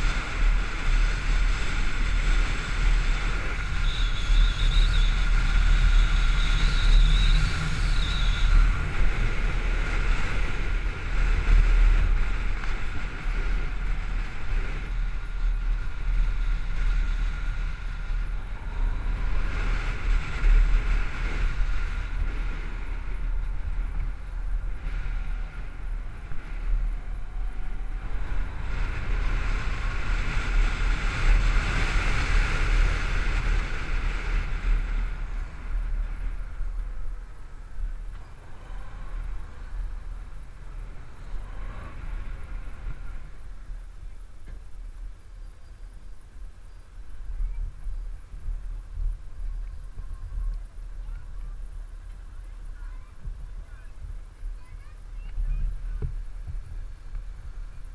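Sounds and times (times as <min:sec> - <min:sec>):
road noise: 0:00.0 - 0:57.9
wind buffeting microphone: 0:00.0 - 0:57.9.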